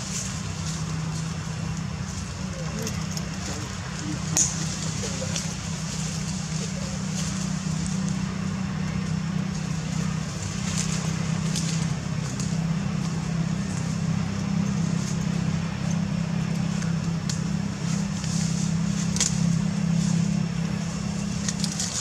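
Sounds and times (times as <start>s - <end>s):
faint clicks and crackles: 8.9s - 14.0s, 21.3s - 22.0s.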